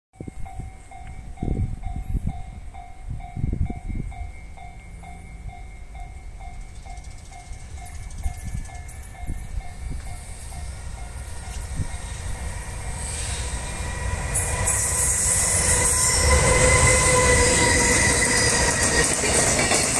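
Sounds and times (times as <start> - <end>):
level-crossing bell ringing: 0.2 - 12.8
wind rumble on microphone: 0.2 - 14.6
rails hissing and ticking: 6.4 - 19.9.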